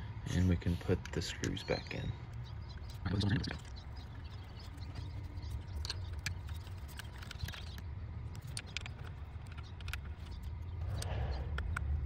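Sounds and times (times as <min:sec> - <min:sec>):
low steady hum: 0:00.0 - 0:12.0
metal bolts clicking and tapping: 0:04.7 - 0:10.6.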